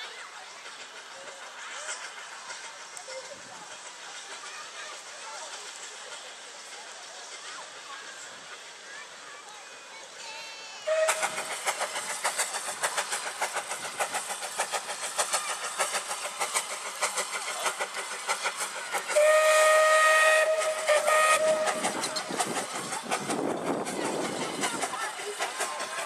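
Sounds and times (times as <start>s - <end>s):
steam locomotive exhaust beating: 0.0s - 10.2s, 10.8s - 26.0s
steam whistle blasts: 10.8s - 11.4s, 19.1s - 22.0s.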